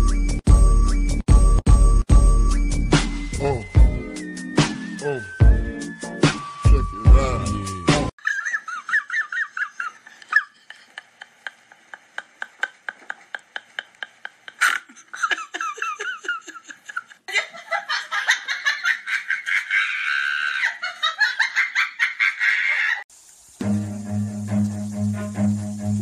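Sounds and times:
high-pitched laughter: 0:08.2 - 0:23.0.

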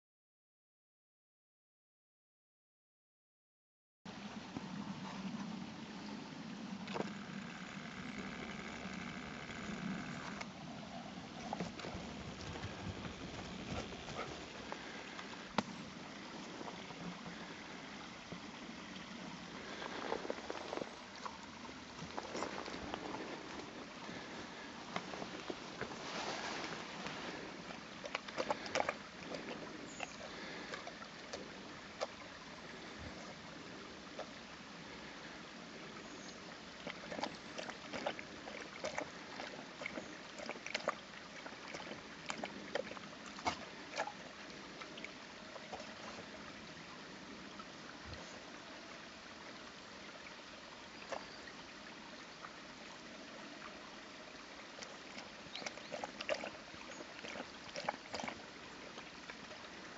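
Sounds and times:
stream running: 0:04.1 - 0:59.9
dog splashing in water: 0:55.1 - 0:58.4.

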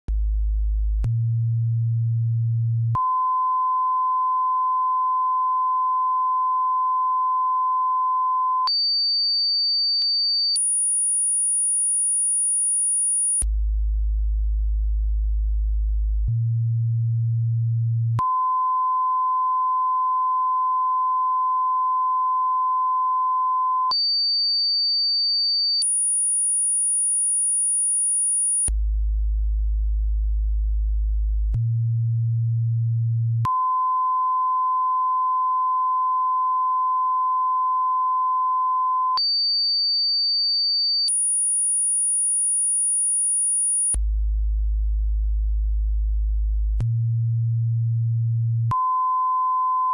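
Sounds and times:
electronic test tones: 0:41.1 - 0:44.0.

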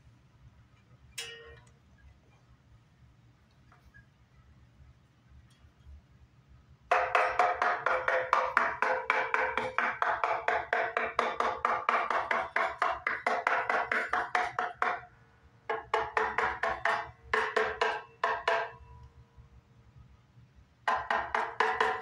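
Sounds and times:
screwdriver tapping wooden guitar body: 0:06.9 - 0:15.1, 0:15.7 - 0:18.8, 0:20.9 - 0:22.0.

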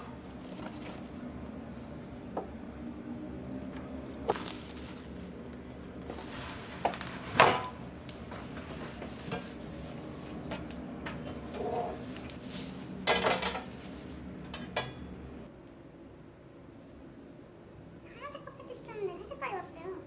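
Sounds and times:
plastic wrap rustling: 0:00.0 - 0:01.4, 0:04.3 - 0:14.6.

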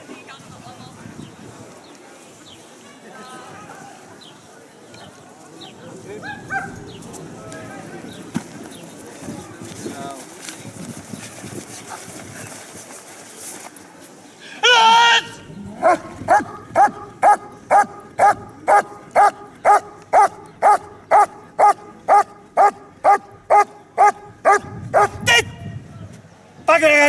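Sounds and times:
dog barking: 0:06.2 - 0:06.8, 0:15.8 - 0:25.3.

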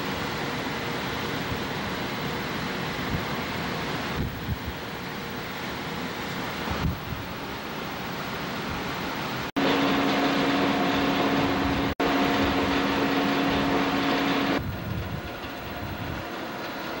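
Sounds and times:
sea noise: 0:00.0 - 0:17.0
ship machinery humming: 0:00.0 - 0:17.0
wind on microphone: 0:04.1 - 0:04.8, 0:06.7 - 0:07.4, 0:10.9 - 0:16.3.

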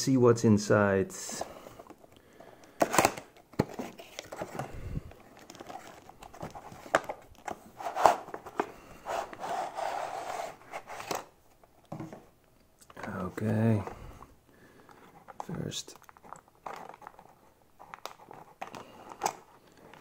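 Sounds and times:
cardboard and packaging crinkling: 0:01.9 - 0:11.3, 0:15.2 - 0:20.0.

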